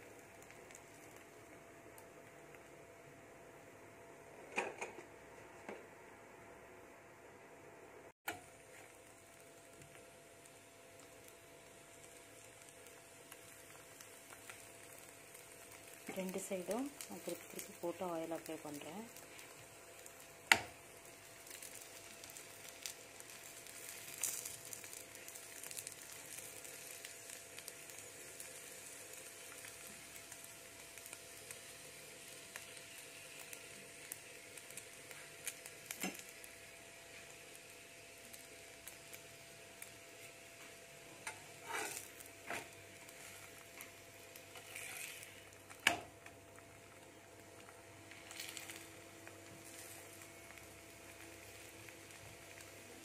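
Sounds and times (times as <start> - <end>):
bread sizzling on griddle: 0.0 - 4.5, 8.3 - 53.0
metal spatula scraping griddle: 41.2 - 43.4, 44.5 - 45.4.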